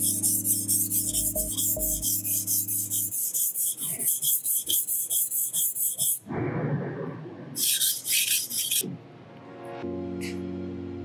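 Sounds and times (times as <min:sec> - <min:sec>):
knife scraping on whetstone: 0:00.0 - 0:06.2.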